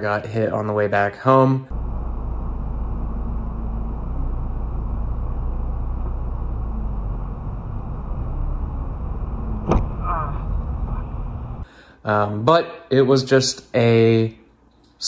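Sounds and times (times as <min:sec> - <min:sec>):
road and engine rumble: 0:01.7 - 0:11.7.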